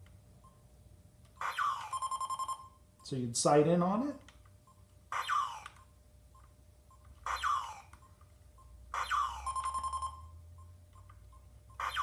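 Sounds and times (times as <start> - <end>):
electronic zap shots: 1.4 - 1.9, 5.1 - 5.8, 7.2 - 7.8, 8.9 - 9.6, 11.8 - 12.0.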